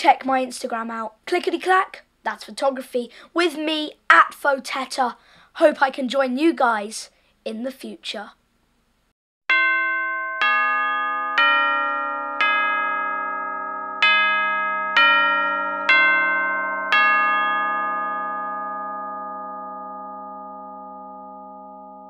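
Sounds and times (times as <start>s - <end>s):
bell-like chime melody: 9.5s - 22.0s.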